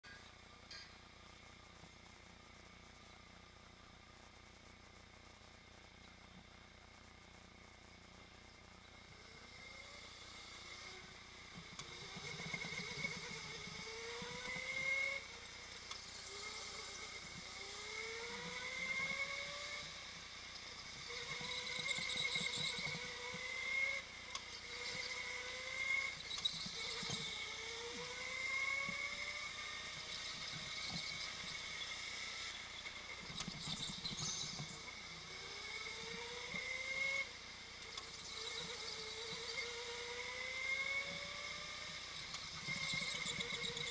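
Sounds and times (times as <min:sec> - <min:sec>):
go-kart motor whining: 0:08.8 - 0:43.9.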